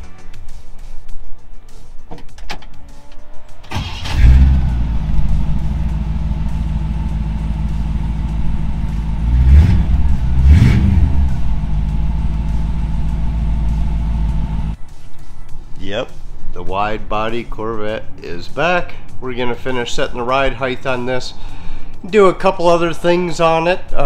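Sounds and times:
car engine starting and idling: 2.2 - 14.8.

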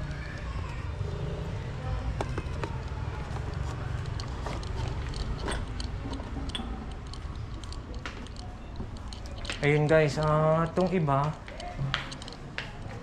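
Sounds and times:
china clinking and taps: 5.1 - 12.7.

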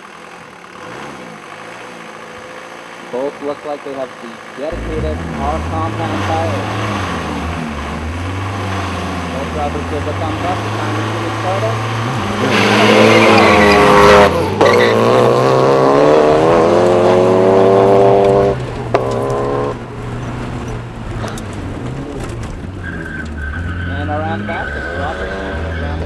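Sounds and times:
race car engines revving: 0.0 - 26.0
tyres squealing: 8.1 - 15.4, 21.3 - 26.0.

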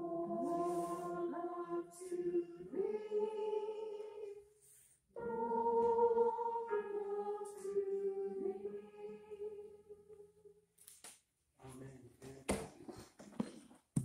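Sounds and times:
congregation singing a hymn: 0.0 - 4.4, 5.2 - 10.0.

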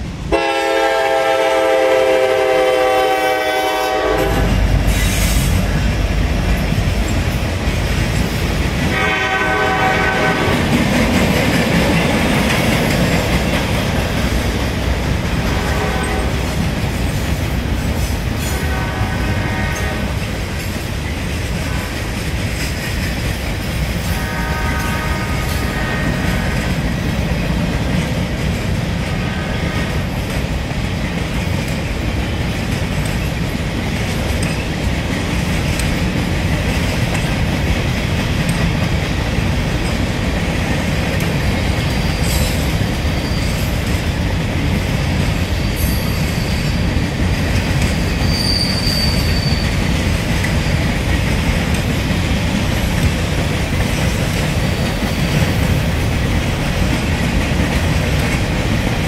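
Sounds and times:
freight train wheels rumbling: 0.0 - 59.0
high-pitched wheel squeals: 41.9 - 43.8, 45.6 - 46.9, 48.0 - 49.8.

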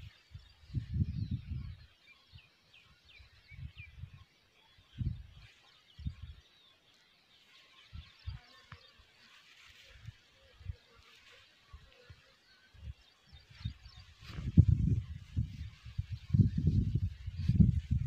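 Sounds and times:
wind buffeting microphone: 0.0 - 1.9, 4.9 - 6.4, 12.8 - 18.0
birds chirping faintly: 0.0 - 18.0.

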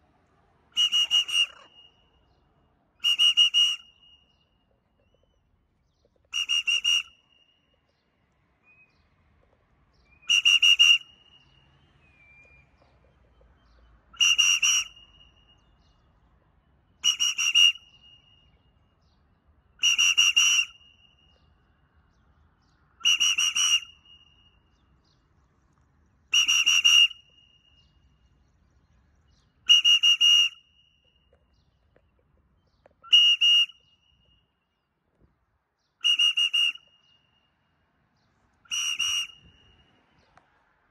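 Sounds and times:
warbling whistle blasts: 0.8 - 2.0, 3.0 - 4.2, 6.4 - 7.2, 10.2 - 11.4, 14.2 - 15.4, 17.0 - 17.9, 23.0 - 24.1, 26.4 - 27.3, 29.7 - 30.7, 33.1 - 33.8, 36.0 - 37.0, 38.7 - 39.8.

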